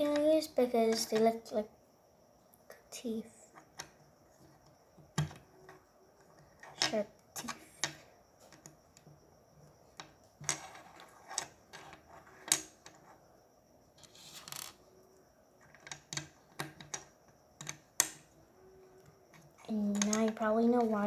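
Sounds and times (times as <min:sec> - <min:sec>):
plastic bricks clicking: 0:15.6 - 0:18.2, 0:19.3 - 0:20.9.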